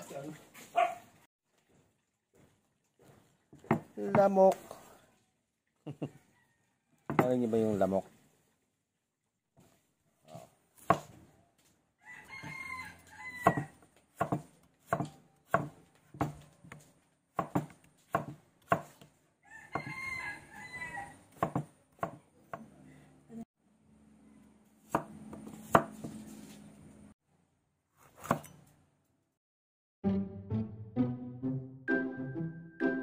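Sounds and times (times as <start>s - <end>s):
cleaver chopping on wooden board: 3.6s - 4.3s, 7.1s - 7.4s, 10.8s - 11.2s, 13.4s - 19.1s, 19.7s - 20.0s, 21.3s - 22.7s, 24.9s - 26.2s
rooster crowing: 6.1s - 7.2s, 12.0s - 13.8s, 19.4s - 21.2s.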